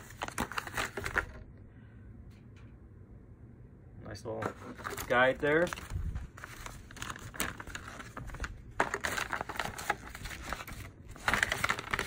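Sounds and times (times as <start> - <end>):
paper rustling and crinkling: 0.0 - 1.4, 4.4 - 12.0.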